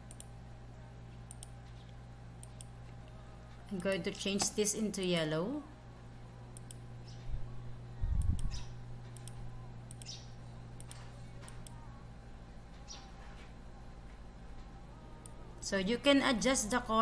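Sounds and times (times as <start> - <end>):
computer mouse clicks: 0.0 - 0.3, 1.2 - 2.7, 6.5 - 7.2, 8.2 - 10.2, 10.8 - 11.8
steady low hum: 0.0 - 17.0.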